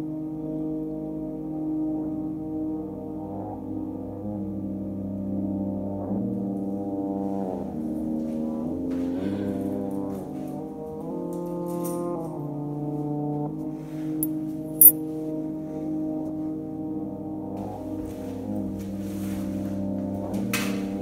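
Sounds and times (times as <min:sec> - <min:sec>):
slow sustained chord music: 0:15.1 - 0:20.0.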